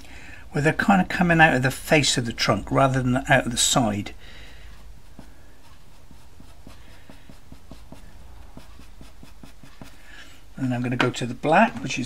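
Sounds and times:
pencil scratching on paper: 4.6 - 10.3.

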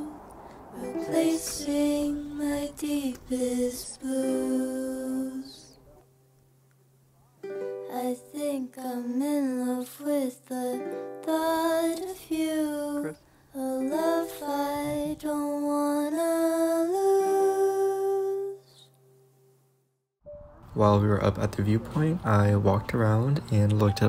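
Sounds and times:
person singing slow melody: 0.0 - 6.0, 7.7 - 19.0.

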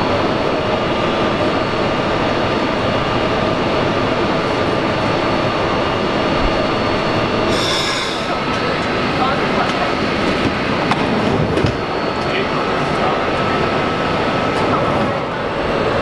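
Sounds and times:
train equipment whirring hum: 0.0 - 16.0.

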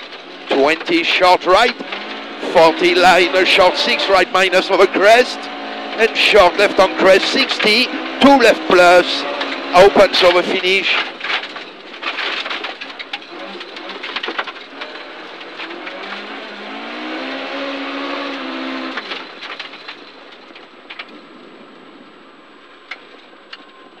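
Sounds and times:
stones clicking against car: 0.0 - 3.2, 9.3 - 21.2
tyres on wet gravel: 0.0 - 21.2
car engine drone: 0.0 - 24.0.

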